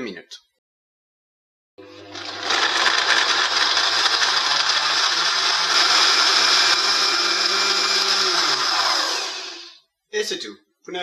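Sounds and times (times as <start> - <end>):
blender motor running: 1.8 - 9.8.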